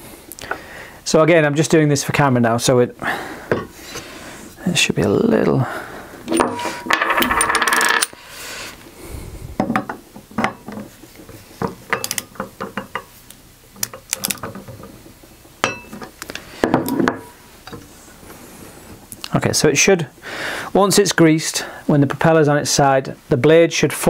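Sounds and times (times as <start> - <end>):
small metal tools clinking: 6.3 - 8.2.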